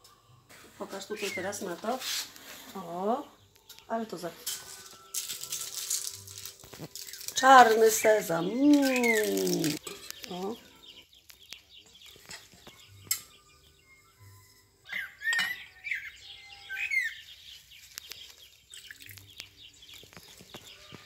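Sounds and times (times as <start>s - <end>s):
metal spoon clinking on pot and plates: 4.4s - 8.1s, 8.8s - 10.4s, 12.3s - 13.4s, 15.3s - 15.8s
bird chirping: 6.9s - 21.0s.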